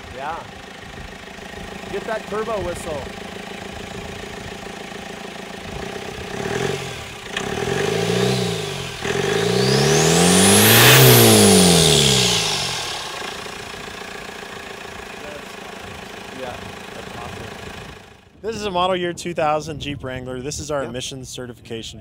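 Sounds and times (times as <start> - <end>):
diesel engine revving: 0.0 - 18.3
turbocharger whistle: 7.4 - 13.8.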